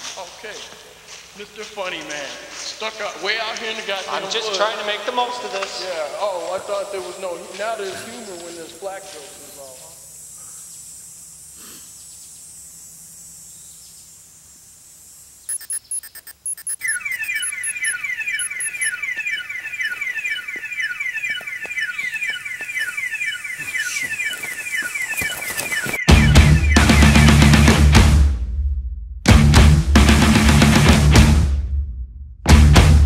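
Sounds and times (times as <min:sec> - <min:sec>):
glitchy electronic bursts: 0:15.5 - 0:21.2, 0:22.7 - 0:27.9
repeating falling beep: 0:15.5 - 0:27.6
loud music: 0:26.1 - 0:28.6, 0:29.2 - 0:31.9, 0:32.5 - 0:33.0.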